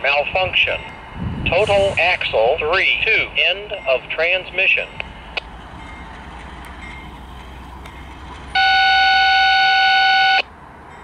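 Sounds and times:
low locomotive rumble: 0.0 - 11.0
locomotive air horn blast: 8.6 - 10.5.

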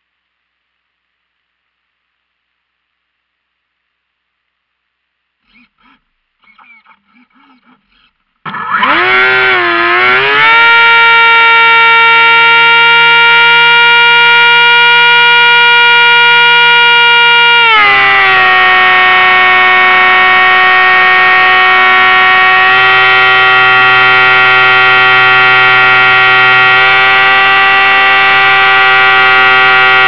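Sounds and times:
electric motor and propeller whine: 8.5 - 30.0.

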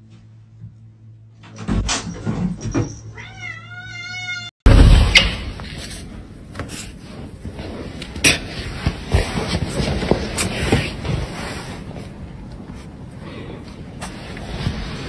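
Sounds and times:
cat meowing: 3.2 - 4.5.

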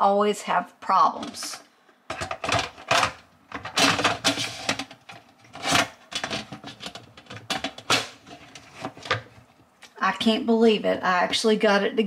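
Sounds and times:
metal filter rattling in tub: 2.1 - 9.4.

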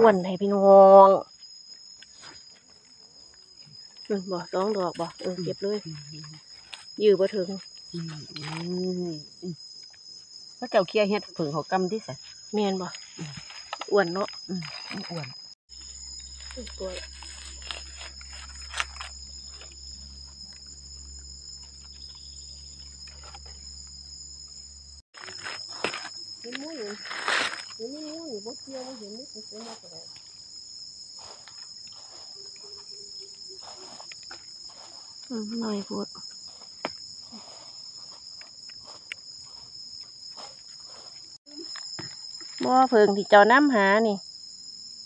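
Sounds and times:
insects droning: 0.0 - 45.0
dry leaves rustling: 14.6 - 20.4, 25.2 - 30.0.

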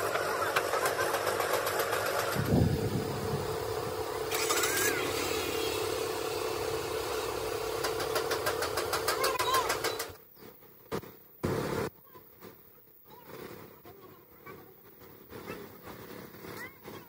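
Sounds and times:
engine idling with rapid ticking: 0.0 - 10.2
low engine rumble: 0.0 - 10.2.

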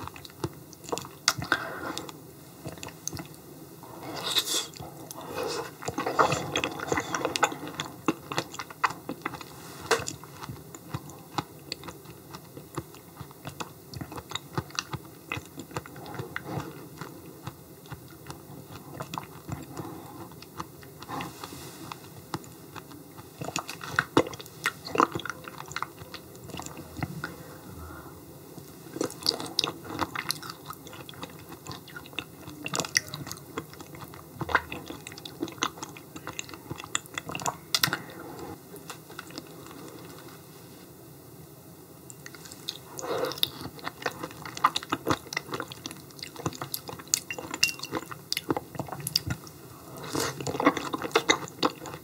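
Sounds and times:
person chewing: 0.0 - 40.3, 42.1 - 52.0.

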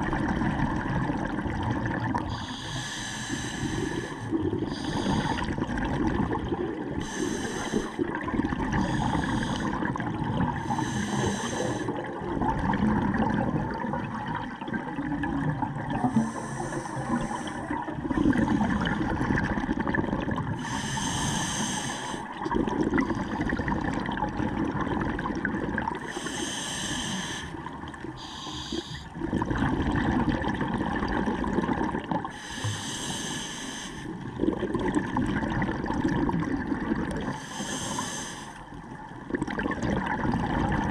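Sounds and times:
underwater bubbling rumble: 0.0 - 2.7, 3.4 - 21.2, 22.2 - 26.6, 27.6 - 32.4, 34.1 - 37.9, 38.6 - 40.9
regulator inhalation hiss: 2.3 - 5.5, 7.0 - 8.0, 8.8 - 9.8, 10.6 - 11.9, 16.1 - 17.7, 20.6 - 22.3, 26.1 - 27.6, 28.2 - 29.1, 32.4 - 34.2, 37.4 - 38.6.

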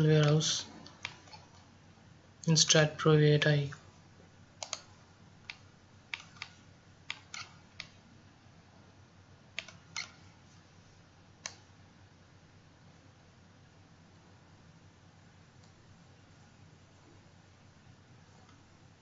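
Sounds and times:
faint room hum: 0.0 - 19.0
computer mouse clicking: 0.2 - 1.6, 4.6 - 8.0, 9.6 - 10.4, 11.4 - 11.7.

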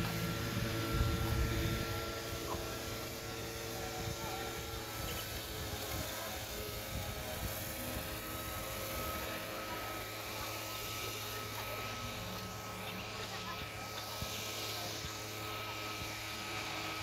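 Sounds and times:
faint high whine: 0.0 - 17.0
wind buffeting microphone: 0.6 - 2.6.

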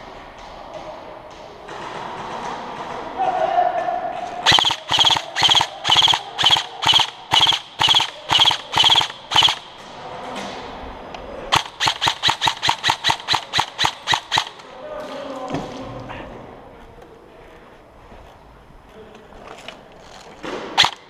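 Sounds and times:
airsoft rifle shots: 4.4 - 9.8, 11.5 - 14.7, 20.6 - 21.0.

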